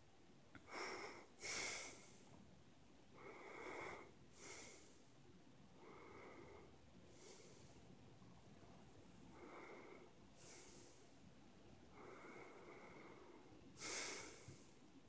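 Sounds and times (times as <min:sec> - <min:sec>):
person breathing noisily: 0:00.7 - 0:02.3, 0:03.2 - 0:05.1, 0:05.8 - 0:07.8, 0:09.3 - 0:11.1, 0:11.9 - 0:14.9.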